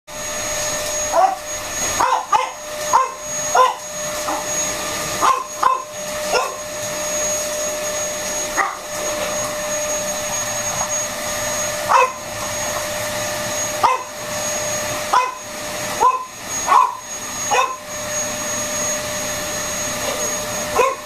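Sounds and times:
vacuum cleaner whine: 0.1 - 21.0
dog barking: 1.1 - 1.4, 2.0 - 4.5, 5.2 - 6.6, 8.6 - 8.9, 11.9 - 12.2, 13.8 - 14.1, 15.1 - 15.4, 16.0 - 17.8, 20.8 - 21.0.

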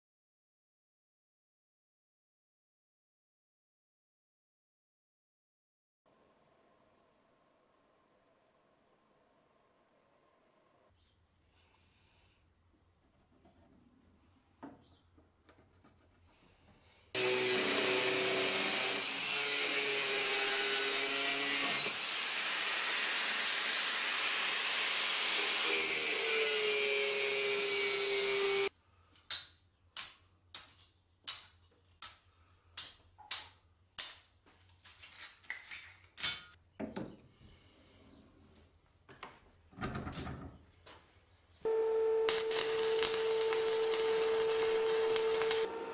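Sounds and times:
angle grinder cutting steel: 17.2 - 28.7, 42.1 - 45.9.

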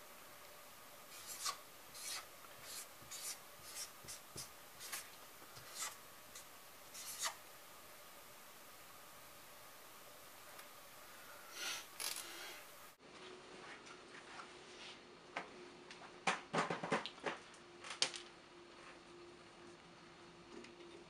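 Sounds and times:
marker scratching on paper: 1.1 - 7.4.

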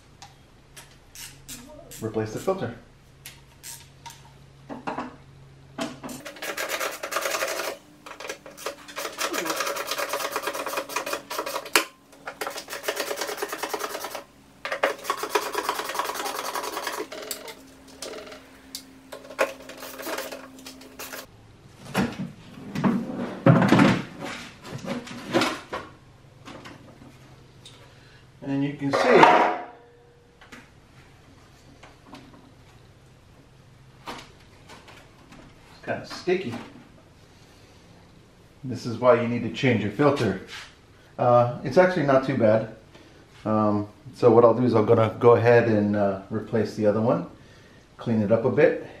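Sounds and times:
hand rubbing and scraping plastic: 6.1 - 18.4, 19.1 - 21.3.

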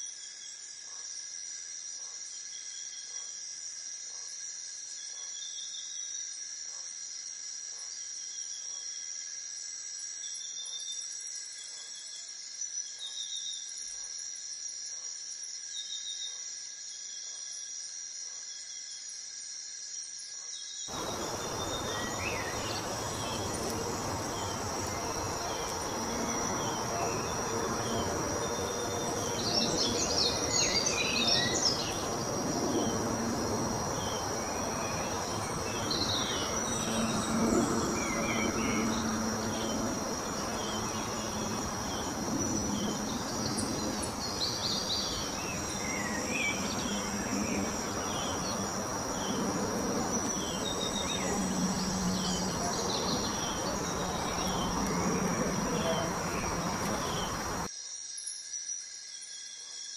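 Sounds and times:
birds chirping: 20.9 - 57.7
steady high-pitched whine: 20.9 - 57.7.

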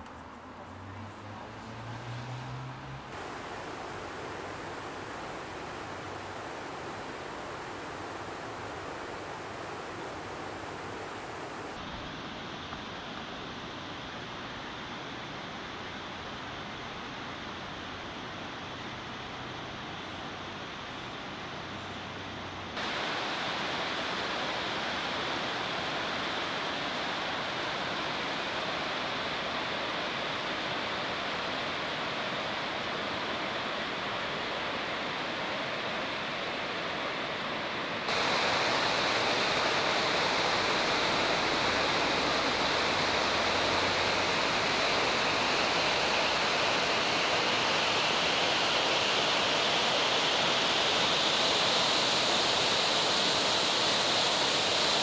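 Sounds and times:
river rapids rushing over boulders: 2.6 - 12.9, 22.7 - 55.0.

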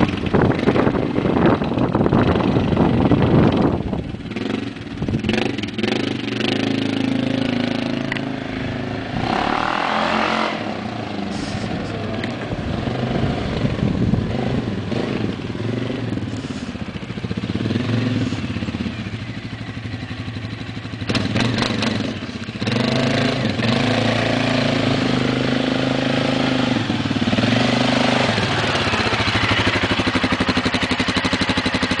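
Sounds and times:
atv engine running: 0.0 - 32.0.

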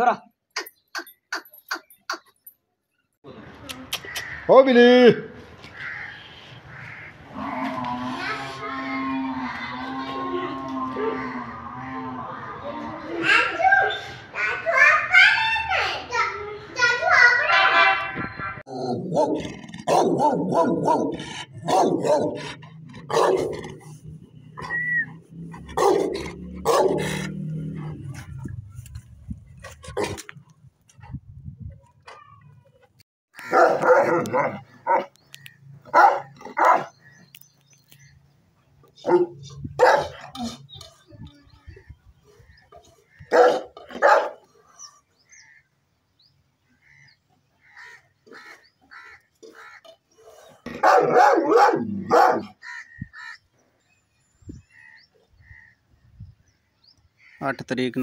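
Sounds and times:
dog barking deeply: 18.7 - 23.9, 25.6 - 28.1, 33.4 - 35.2, 35.9 - 37.0, 39.0 - 40.6, 43.2 - 44.5, 50.6 - 52.6.

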